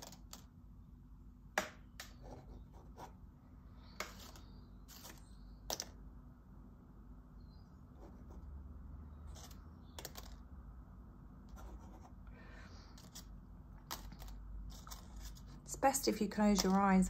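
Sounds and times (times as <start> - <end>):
low steady hum: 0.0 - 17.0
marker pen scratching paper: 2.1 - 3.2, 11.5 - 12.2, 14.0 - 15.6.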